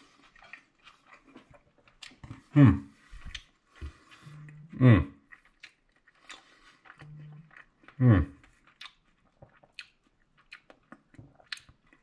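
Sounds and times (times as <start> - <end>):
man humming: 2.5 - 2.9, 4.4 - 5.2, 8.0 - 8.4.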